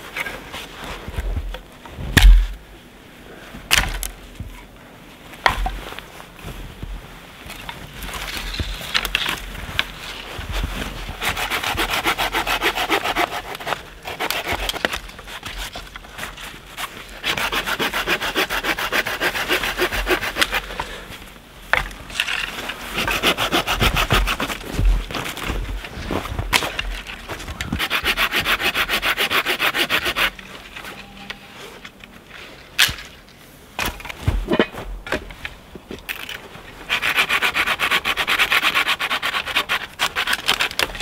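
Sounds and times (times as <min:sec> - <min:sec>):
hand saw rasping through branches: 0:10.6 - 0:20.8, 0:22.6 - 0:25.5, 0:26.5 - 0:30.6, 0:36.9 - 0:41.0.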